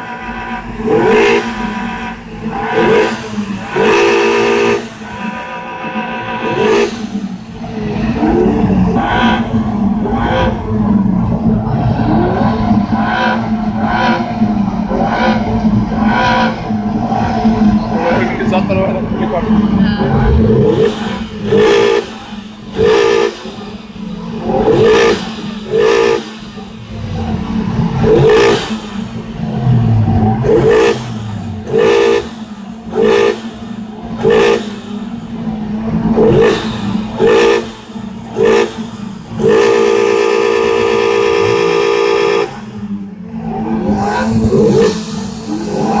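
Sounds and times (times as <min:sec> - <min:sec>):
car horn honking: 0:00.0 - 0:07.0, 0:20.0 - 0:23.7, 0:31.7 - 0:33.4, 0:39.4 - 0:43.0
steady low hum: 0:07.1 - 0:22.8.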